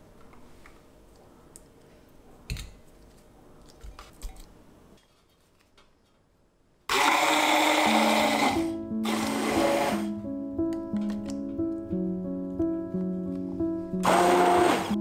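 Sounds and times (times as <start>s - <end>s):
stick blender running: 6.9s - 10.1s, 14.0s - 15.0s.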